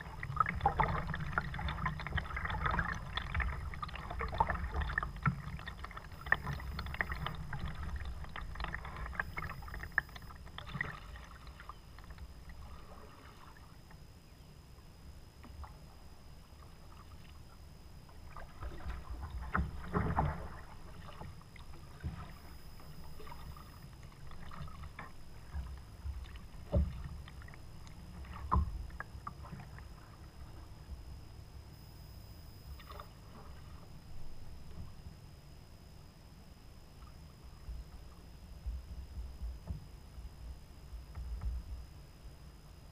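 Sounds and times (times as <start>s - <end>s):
paddle strokes in water: 0.0s - 14.0s, 15.4s - 31.2s, 32.7s - 35.1s.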